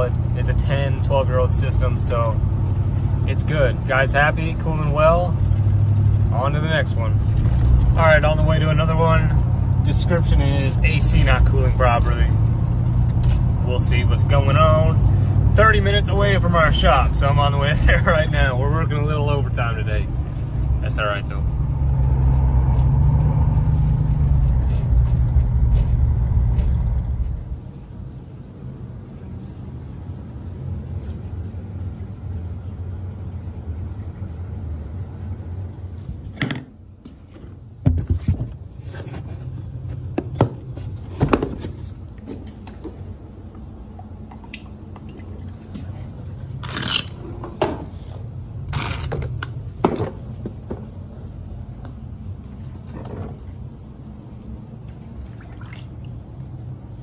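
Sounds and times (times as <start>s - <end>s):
low steady hum: 0.0s - 57.0s
vehicle cabin road and engine rumble: 0.0s - 57.0s
water sloshing in plastic tank: 36.6s - 48.0s, 54.8s - 56.6s.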